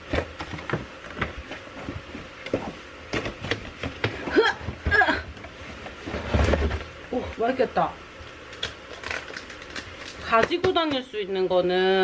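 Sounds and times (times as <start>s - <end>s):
grocery packages clicking and knocking: 0.0s - 6.9s, 8.5s - 11.1s.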